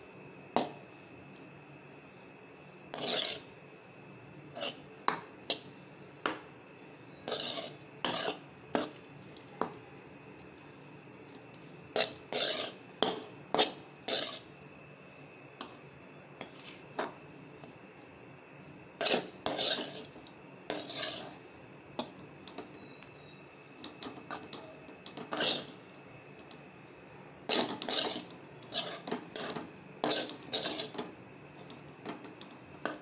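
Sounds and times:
spatula scraping metal pan: 2.9 - 3.5, 4.5 - 4.9, 7.3 - 9.0, 12.0 - 14.5, 16.4 - 17.1, 19.0 - 21.4, 24.3 - 25.8, 27.5 - 31.1.

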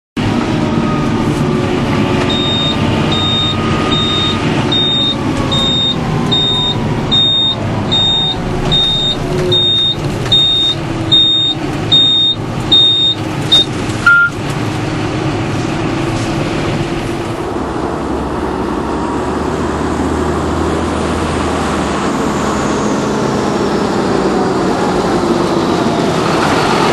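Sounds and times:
engine whine: 0.2 - 26.9
tractor engine running: 0.2 - 26.9
high electronic beeps: 2.3 - 14.4
lower beep: 2.3 - 14.4.

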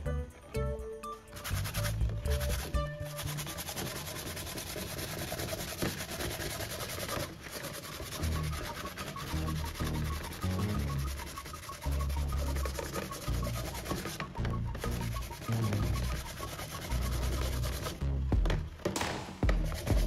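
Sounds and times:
sandpaper scratching: 1.3 - 18.0, 19.4 - 20.0.

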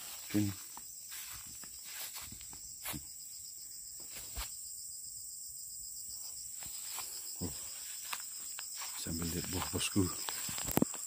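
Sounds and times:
footsteps on dry grass: 0.0 - 3.3, 4.0 - 4.6, 6.5 - 11.0
high-pitched insect chorus: 0.0 - 11.0.

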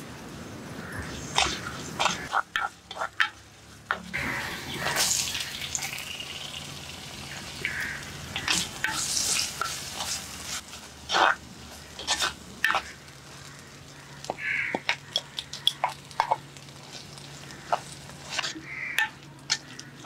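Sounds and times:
food sizzling in oil: 1.1 - 19.7
spatula scraping a pot: 8.4 - 13.0, 14.8 - 19.9.

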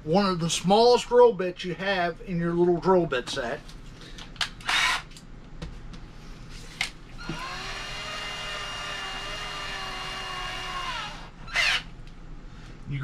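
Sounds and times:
cordless drill motor whining: 4.6 - 5.1, 7.2 - 11.9.

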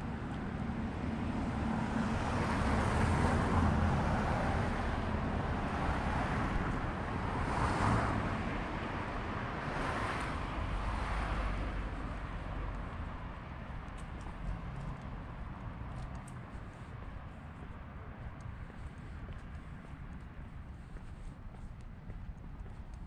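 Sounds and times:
cars passing: 0.0 - 23.0
steady low rumble: 10.5 - 23.0.

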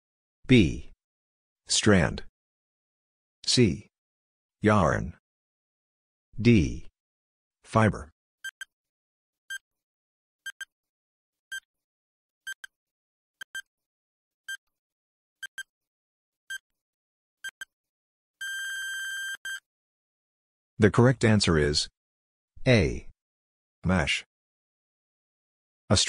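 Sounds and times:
buzzer tone: 18.4 - 19.6
short high beeps: 18.4 - 19.6.

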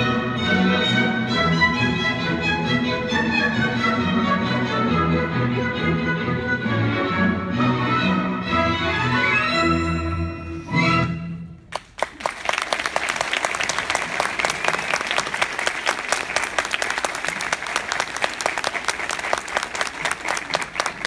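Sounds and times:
orchestral ballet music: 0.0 - 11.7
audience applause: 11.7 - 21.0.

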